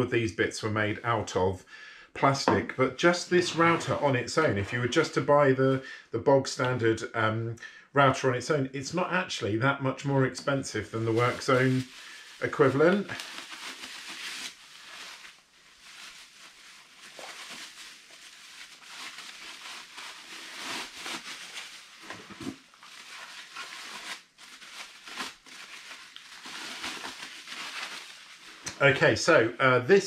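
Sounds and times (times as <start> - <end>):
bubble wrap crinkling: 10.9 - 28.7.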